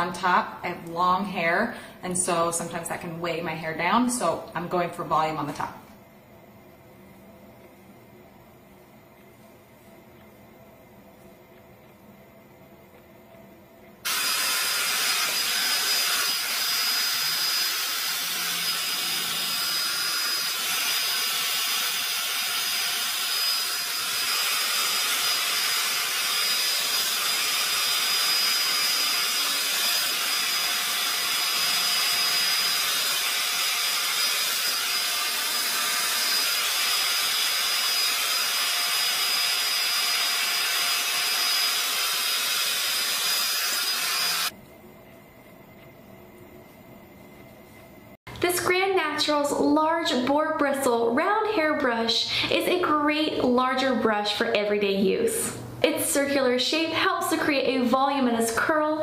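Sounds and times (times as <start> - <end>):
high motor whine: 14.1 - 44.5
hot air brush blowing: 14.1 - 44.5.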